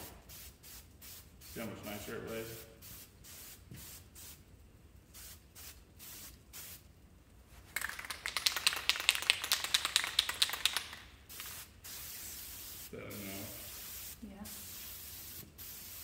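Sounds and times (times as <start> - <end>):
spray can hissing: 0.1 - 1.7, 2.5 - 4.5, 5.1 - 6.9, 7.8 - 16.0
spray can ball rattling: 5.1 - 6.9, 7.6 - 16.0.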